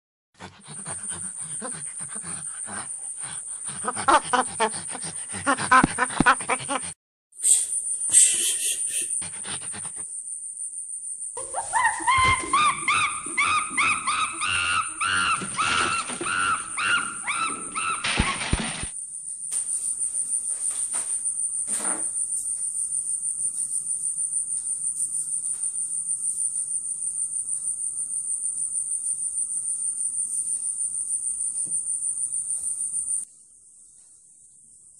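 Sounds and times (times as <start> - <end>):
crickets chirping: 0.6 - 6.8, 7.4 - 34.9
monkey crying: 3.7 - 7.0, 11.4 - 18.5.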